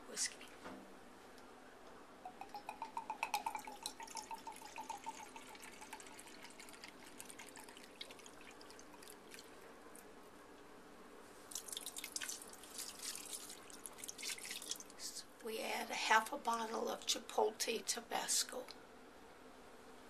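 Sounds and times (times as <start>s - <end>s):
liquid glugging from glass bottle: 2.3s - 9.5s
liquid splashing into pot: 2.3s - 9.6s, 11.5s - 15.0s
thin trickle of liquid: 2.3s - 10.1s, 11.4s - 15.2s.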